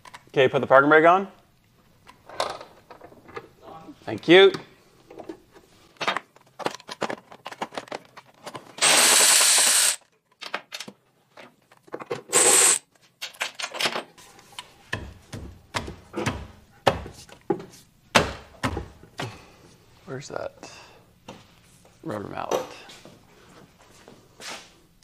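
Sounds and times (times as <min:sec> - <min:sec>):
power tool running: 0:08.8 - 0:10.0, 0:12.3 - 0:12.8.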